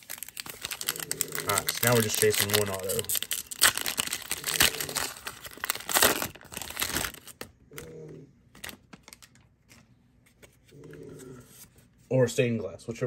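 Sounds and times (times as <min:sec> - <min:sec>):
foil pack crinkling: 0:00.0 - 0:07.5, 0:08.5 - 0:09.9.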